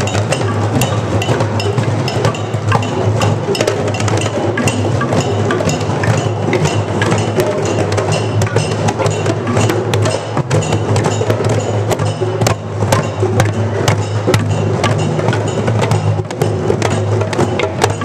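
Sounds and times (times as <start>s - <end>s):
djembe drums played by hand: 0.0s - 18.0s.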